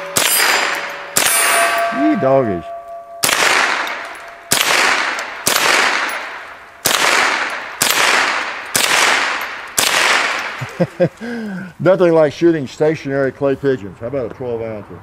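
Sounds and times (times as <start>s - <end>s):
rifle shots echoing: 0.0s - 10.6s.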